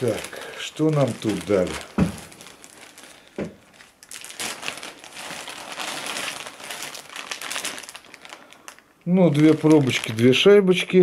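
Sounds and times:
plastic bag crinkling: 0.0s - 10.7s
dull knock: 2.0s - 2.2s.

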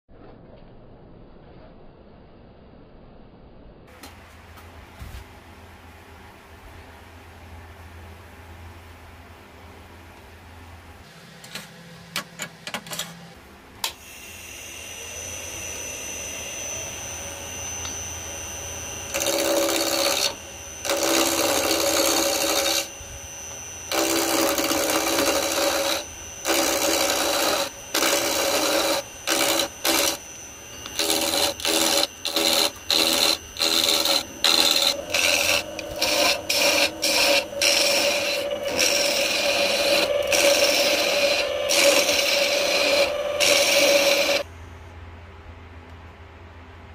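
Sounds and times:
wood lathe running: 14.1s - 44.5s
gouge scraping wood: 30.8s - 44.4s.

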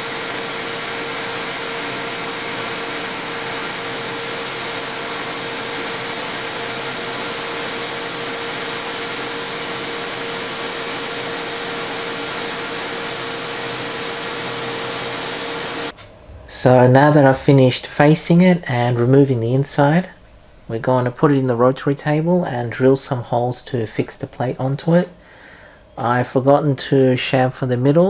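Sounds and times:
metal lathe cutting whine: 0.0s - 15.9s.

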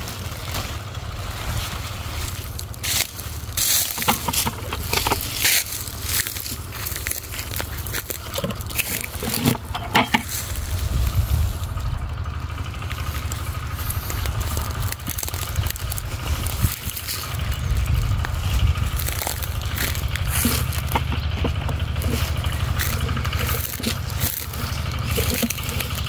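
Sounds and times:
dry leaves rustling and crackling: 0.0s - 26.0s
twigs snapping: 0.1s - 12.0s, 12.6s - 26.0s
wind rumble on microphone: 10.5s - 12.0s, 15.5s - 20.5s.

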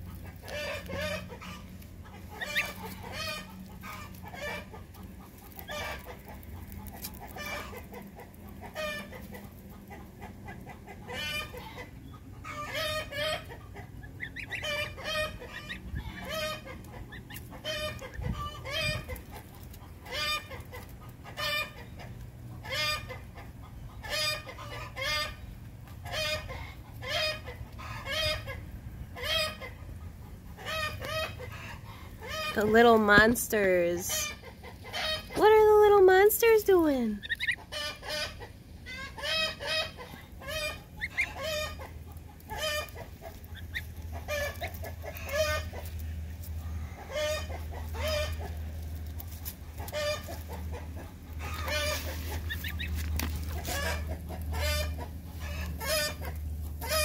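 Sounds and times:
poultry calling: 0.1s - 25.4s, 36.8s - 46.0s, 46.7s - 48.6s, 49.8s - 57.0s.

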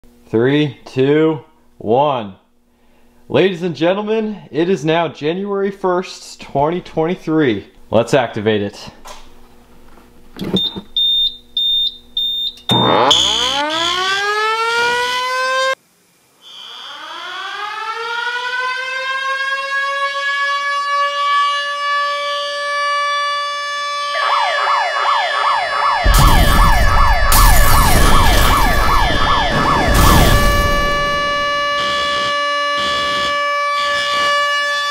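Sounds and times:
warning siren winding up: 10.5s - 15.8s, 16.4s - 34.9s
high-pitched electronic beeps: 12.2s - 13.7s
fast whooping siren: 12.7s - 15.8s, 16.4s - 34.9s
loud rushing noise: 26.0s - 31.6s.

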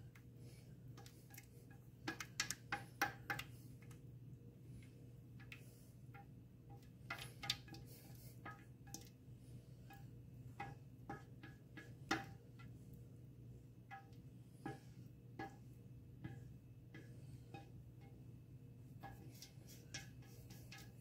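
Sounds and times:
low steady hum: 0.0s - 21.0s
spatula scraping metal bowl: 13.9s - 18.2s, 19.0s - 21.0s.

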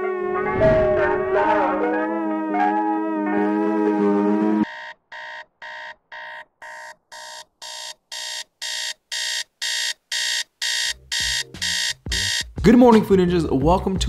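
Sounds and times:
held musical chord: 0.0s - 4.6s
alarm clock beeping: 4.6s - 12.6s.

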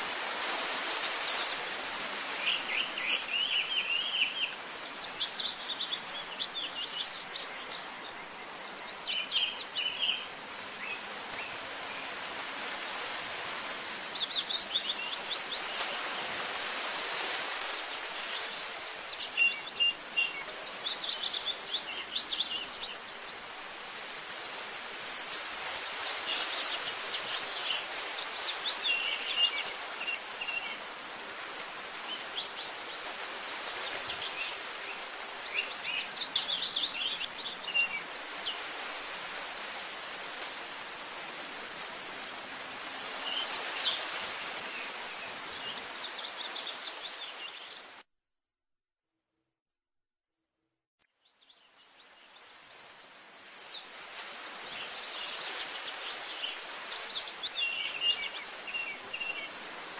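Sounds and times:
outdoor ambient hiss: 0.0s - 48.0s, 51.2s - 59.9s
small birds chirping: 31.9s - 38.7s, 41.2s - 48.0s, 51.1s - 59.7s.

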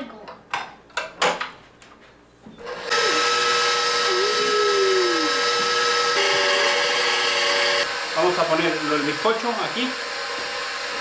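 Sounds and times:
stand mixer motor whining: 2.6s - 11.0s.

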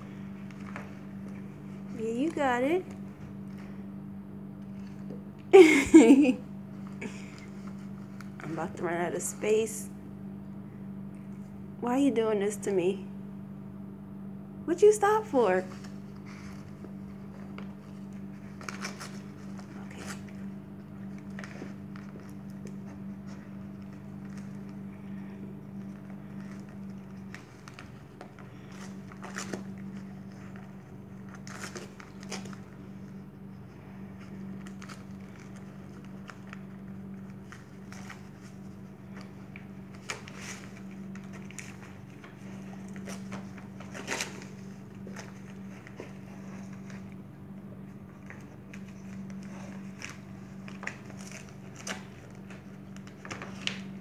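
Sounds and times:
dog tearing wrapping paper: 17.2s - 33.1s, 34.0s - 47.0s, 48.2s - 54.0s.

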